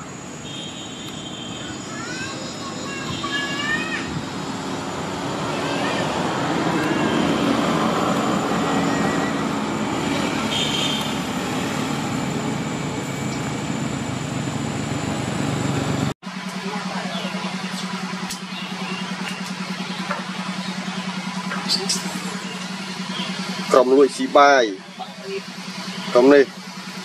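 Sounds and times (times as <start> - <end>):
steady traffic noise: 0.0 - 27.0
faint high squeals: 5.5 - 11.2.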